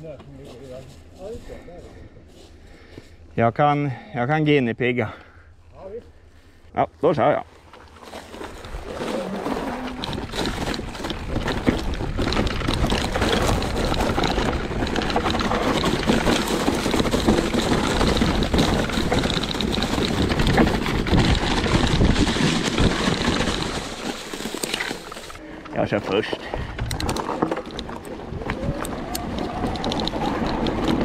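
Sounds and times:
bike rattling over bumps: 7.2 - 31.0
bike tyres rolling over dirt: 7.2 - 31.0.

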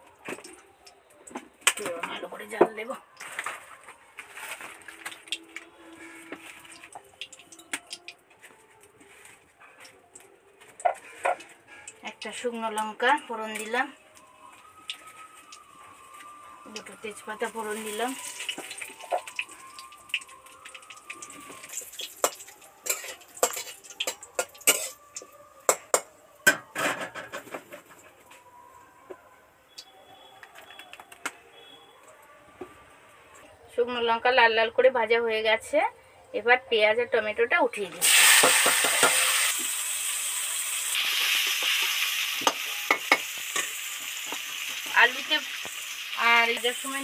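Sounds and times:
vegetables sizzling in hot oil: 16.6 - 26.0, 38.0 - 47.0
metal spatula clinking on pan: 22.0 - 25.0.

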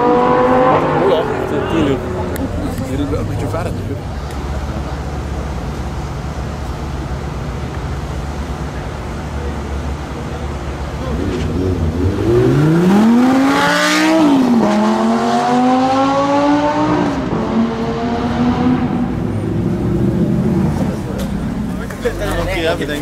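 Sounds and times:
sports car engine accelerating: 0.0 - 6.0, 9.8 - 23.0
sports car engine idling: 1.2 - 12.2.

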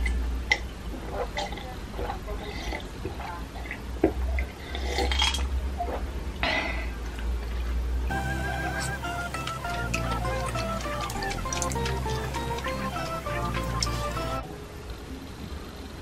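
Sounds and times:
music: 8.1 - 14.7.

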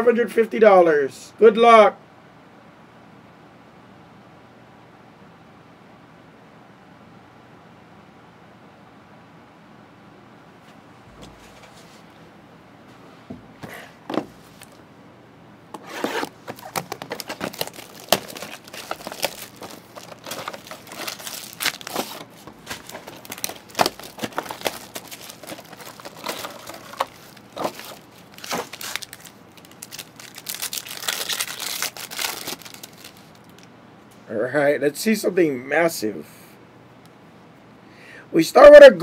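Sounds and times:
plastic and foil wrappers crinkling: 14.3 - 14.8, 15.8 - 33.7.

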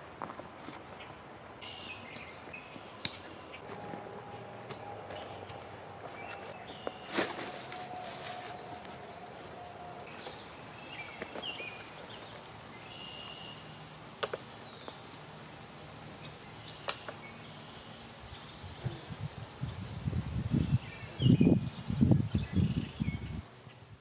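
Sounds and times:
sharp snaps: 16.8 - 17.2.

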